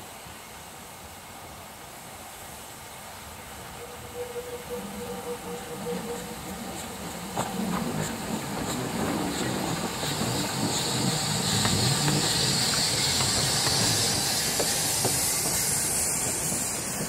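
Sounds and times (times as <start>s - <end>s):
steam hissing: 3.6s - 17.0s
train rumbling: 3.7s - 17.0s
wheels clicking on rails: 5.0s - 17.0s.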